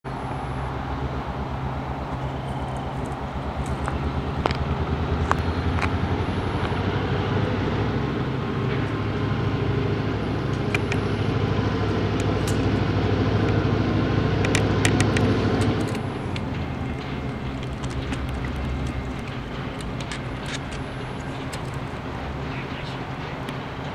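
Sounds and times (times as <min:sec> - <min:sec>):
train engine rumble: 0:00.0 - 0:23.9
sharp clicks: 0:14.3 - 0:23.6.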